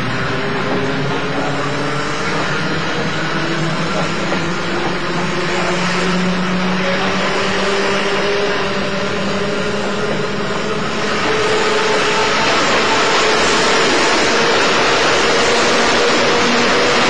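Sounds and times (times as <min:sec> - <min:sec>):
electric train running rumble: 0:00.0 - 0:17.0
traction motors humming: 0:00.0 - 0:17.0.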